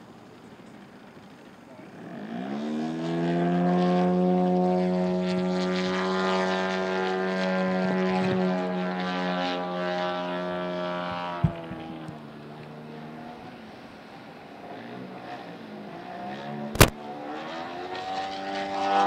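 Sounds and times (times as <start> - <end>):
model airplane engine: 0.0 - 19.0
sharp click: 16.8 - 17.0.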